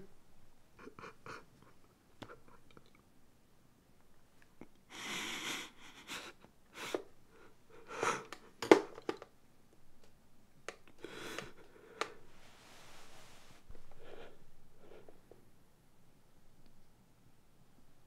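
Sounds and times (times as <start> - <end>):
man sniffing: 4.9 - 7.1, 7.8 - 8.3, 11.0 - 12.2
man breathing heavily: 4.9 - 8.4, 11.0 - 12.3.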